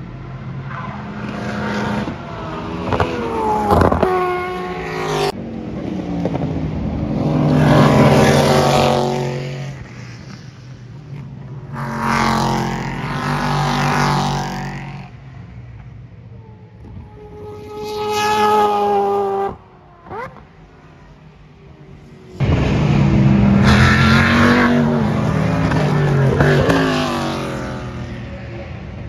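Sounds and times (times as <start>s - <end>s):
race cars passing at speed: 0.0s - 29.0s
rising engine whine: 16.2s - 28.8s.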